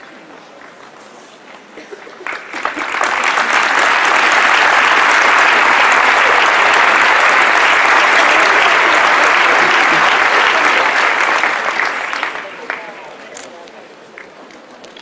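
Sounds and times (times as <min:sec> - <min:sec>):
crowd applauding: 0:01.9 - 0:13.4.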